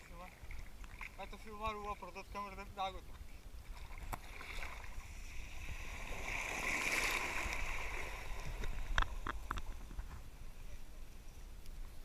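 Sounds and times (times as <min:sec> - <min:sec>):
bike tyres splashing through water: 0:05.6 - 0:08.7.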